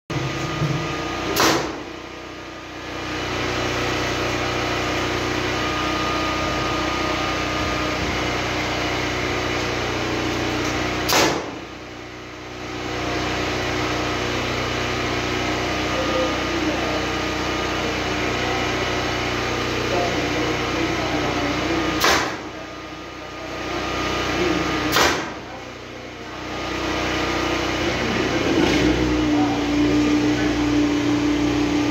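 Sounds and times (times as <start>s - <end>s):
steady machine hum: 0.1s - 31.9s
nail gun firing into wood: 1.3s - 1.9s, 11.0s - 11.6s, 22.0s - 22.5s, 24.9s - 25.4s.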